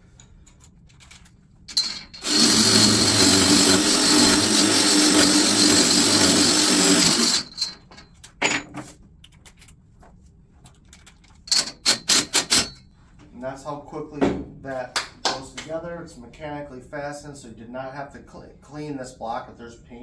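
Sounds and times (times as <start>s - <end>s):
cordless drill running under load: 1.7s - 7.7s.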